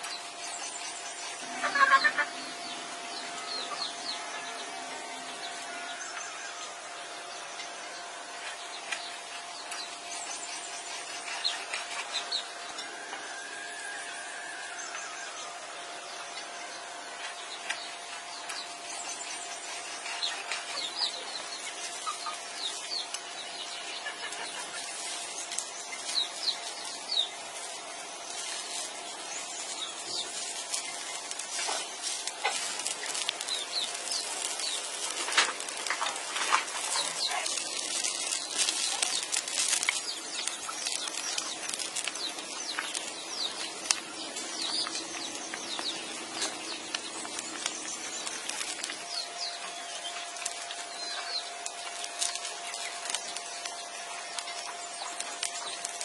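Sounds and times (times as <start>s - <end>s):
birds chirping: 0.0s - 56.0s
broth bubbling in pot: 18.7s - 56.0s.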